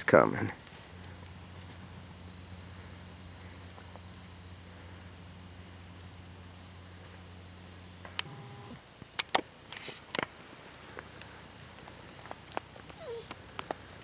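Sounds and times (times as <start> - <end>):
low hum: 0.4 - 8.8.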